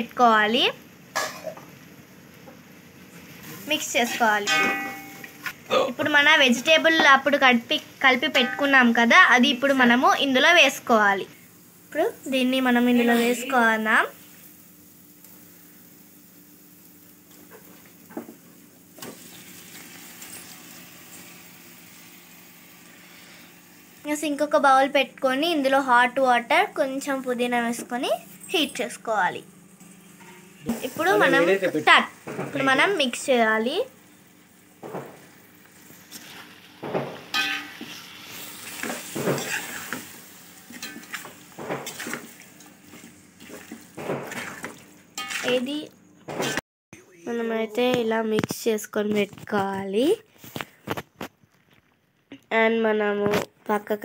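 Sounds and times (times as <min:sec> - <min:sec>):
onions sizzling in a pot: 0:00.0 - 0:45.9
ladle scraping a metal pot: 0:39.3 - 0:40.0.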